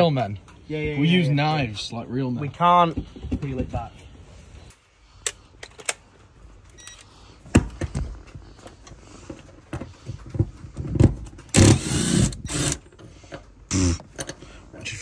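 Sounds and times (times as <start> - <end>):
cordless impact driver running: 11.5 - 12.8.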